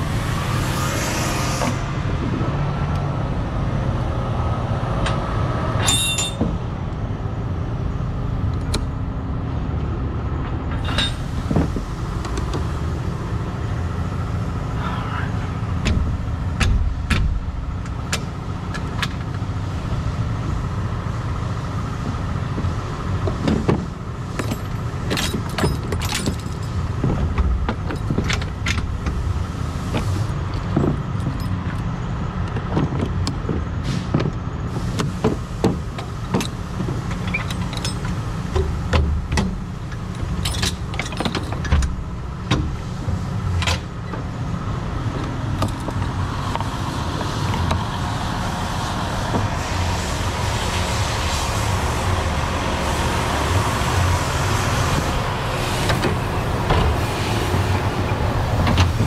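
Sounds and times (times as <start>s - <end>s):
truck engine idling: 1.8s - 59.0s
metal chains clinking: 5.8s - 6.4s, 24.4s - 26.8s, 37.2s - 38.2s, 40.4s - 41.7s.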